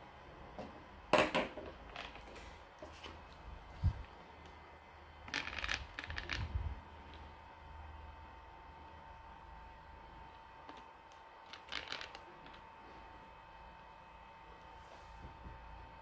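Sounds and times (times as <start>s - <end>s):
plastic clicks and rattles: 5.3s - 6.5s, 10.7s - 12.6s.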